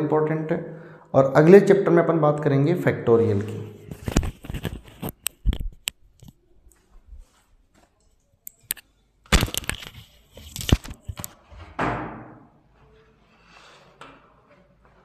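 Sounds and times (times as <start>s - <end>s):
handling noise on microphone: 3.3s - 8.0s
crackling and rustling: 3.8s - 11.5s.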